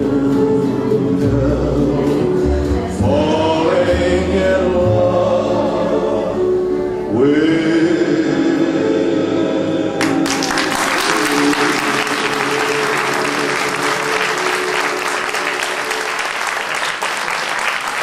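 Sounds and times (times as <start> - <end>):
audience applauding: 10.0 - 18.0
dance music: 10.4 - 16.6.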